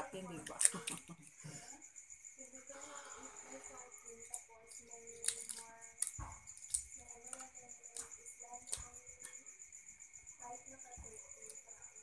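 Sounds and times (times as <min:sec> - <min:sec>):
high insect trill: 0:00.0 - 0:12.0
eggshell cracking: 0:04.3 - 0:08.9.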